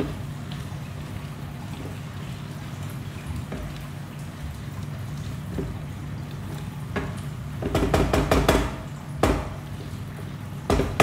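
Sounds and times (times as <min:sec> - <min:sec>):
spatula knocking against pan: 0:07.0 - 0:09.6, 0:10.7 - 0:11.0.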